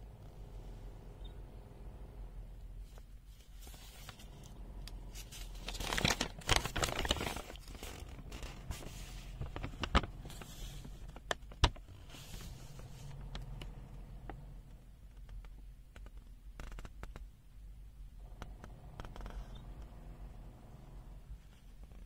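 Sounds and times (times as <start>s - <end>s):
paper pages rustling: 2.8s - 13.3s.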